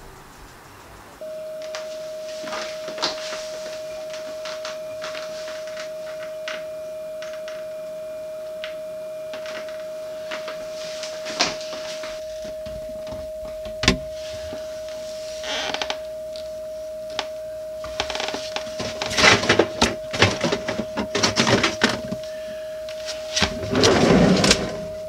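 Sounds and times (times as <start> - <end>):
steady tone: 1.2 - 25.0.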